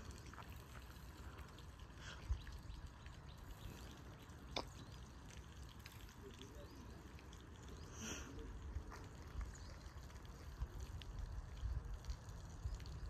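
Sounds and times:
wind rumble on microphone: 8.4 - 13.0.

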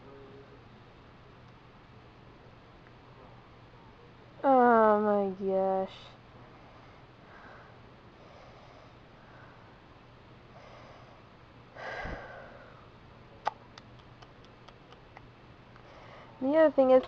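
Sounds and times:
faint low hum: 0.0 - 17.0
person breathing: 6.5 - 9.8, 10.5 - 12.9, 15.8 - 16.4.

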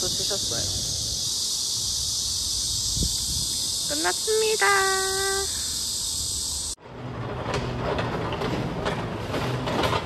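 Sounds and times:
insect chorus buzzing: 0.0 - 6.8.

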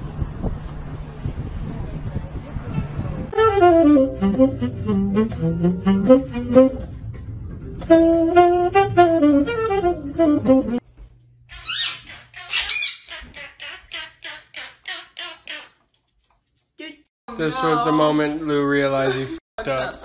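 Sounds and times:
saxophone melodic phrase: 3.3 - 7.0, 7.8 - 10.8
parrots squawking: 11.5 - 15.8.

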